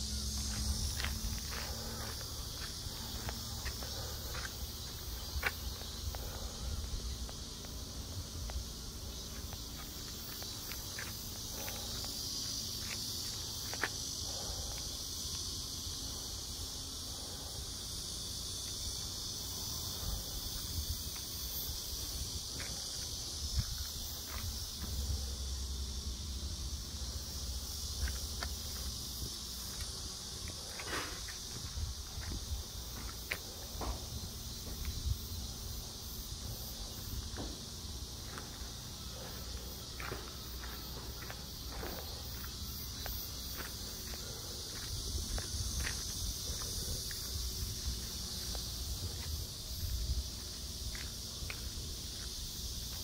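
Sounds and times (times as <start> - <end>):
insects droning: 0.0 - 53.0
footsteps: 0.3 - 15.4, 22.5 - 25.2, 27.9 - 35.1, 36.4 - 53.0.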